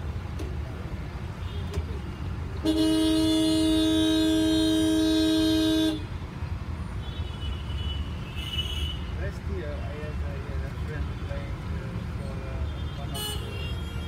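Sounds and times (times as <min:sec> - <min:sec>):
vehicle horn blast: 0:02.6 - 0:06.1, 0:12.9 - 0:14.0.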